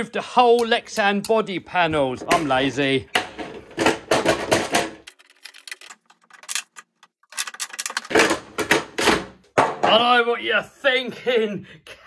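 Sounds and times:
hard plastic parts clicking: 0:02.2 - 0:09.3.

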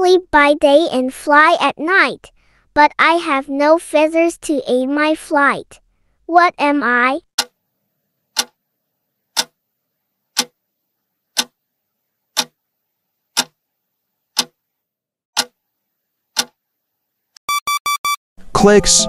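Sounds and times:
clock ticking: 0:07.4 - 0:07.6, 0:08.4 - 0:08.6, 0:09.4 - 0:09.6, 0:13.4 - 0:13.6, 0:14.4 - 0:14.6, 0:15.4 - 0:15.6
short high beeps: 0:17.5 - 0:18.2.

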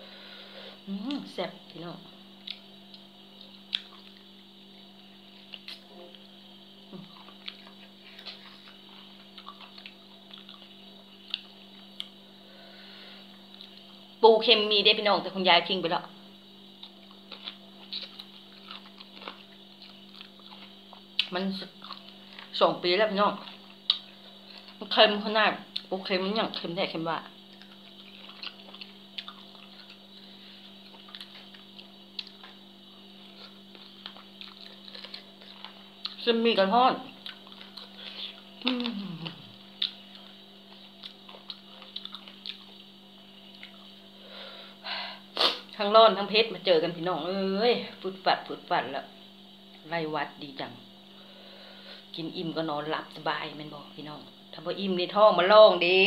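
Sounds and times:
steady low hum: 0:00.0 - 0:56.0
wet chewing and lip-smacking: 0:02.4 - 0:04.4, 0:07.0 - 0:12.2, 0:16.8 - 0:22.6, 0:23.4 - 0:24.8, 0:27.4 - 0:32.6, 0:33.3 - 0:36.2, 0:37.1 - 0:42.9, 0:43.5 - 0:44.0.

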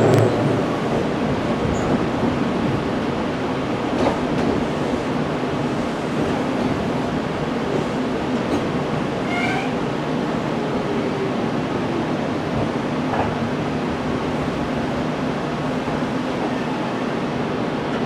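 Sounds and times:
electric train running rumble: 0:00.0 - 0:18.0.

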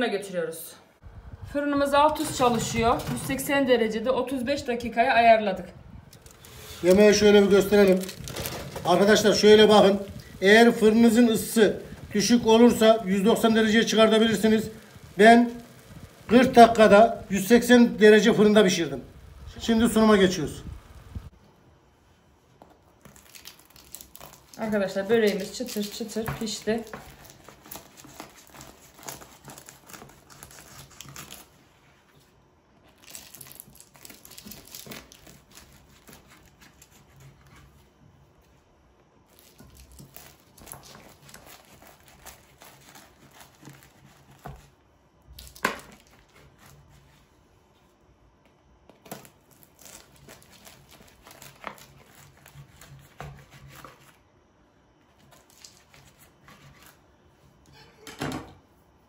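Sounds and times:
knife slicing crackling pastry: 0:06.2 - 0:18.7, 0:23.0 - 0:31.6, 0:32.9 - 0:37.8, 0:39.3 - 0:44.8, 0:49.0 - 0:54.2, 0:55.2 - 0:57.0.

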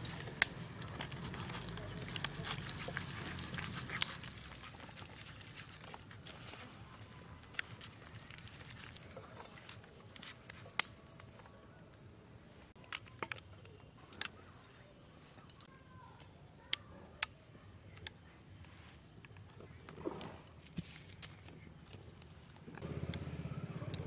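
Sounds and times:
paste mixed by hand in steel bowl: 0:00.0 - 0:10.7.

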